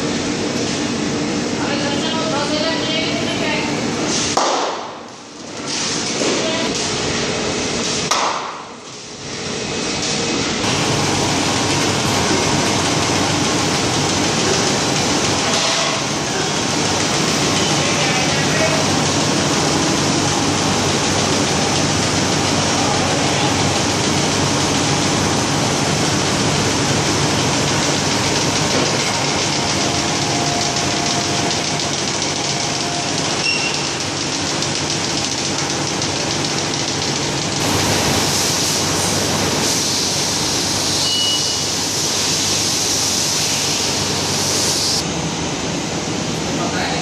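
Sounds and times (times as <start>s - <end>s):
factory machines running: 0.0s - 47.0s.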